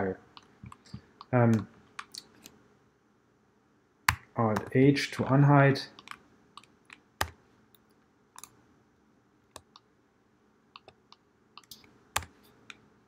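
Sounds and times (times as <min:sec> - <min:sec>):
keyboard and mouse clicks: 0:00.3 - 0:02.6, 0:05.9 - 0:08.6, 0:09.5 - 0:09.9, 0:10.7 - 0:12.9.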